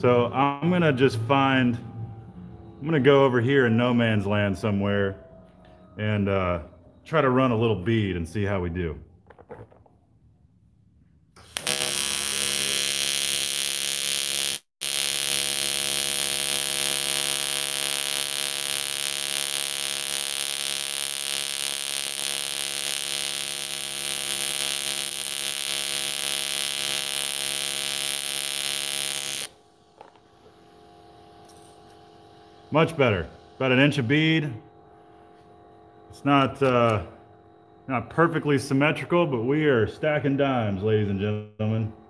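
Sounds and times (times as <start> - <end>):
welding arc buzzing: 11.4 - 35.5.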